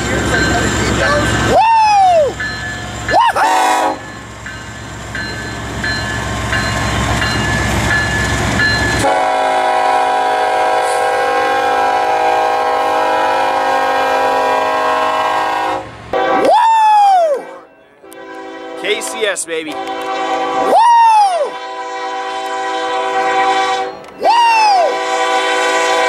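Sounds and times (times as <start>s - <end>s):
train horn chord: 3.4s - 4.1s, 9.0s - 16.5s, 17.5s - 20.7s, 21.5s - 24.0s, 24.9s - 26.0s.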